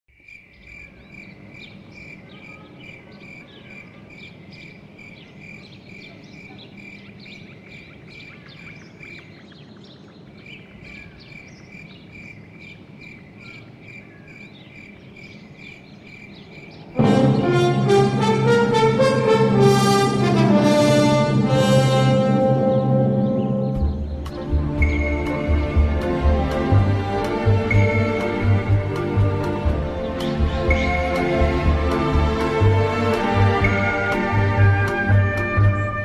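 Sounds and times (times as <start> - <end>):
insect chirping steadily: 0.1 - 17.0
higher chirps: 17.0 - 32.1.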